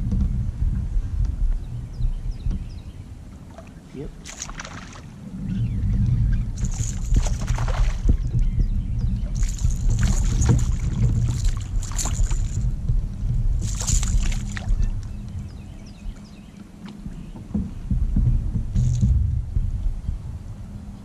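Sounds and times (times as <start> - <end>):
low rumble: 0.0 - 21.0
fish splashing: 3.5 - 5.2, 6.6 - 8.3, 9.4 - 12.6, 13.6 - 14.8.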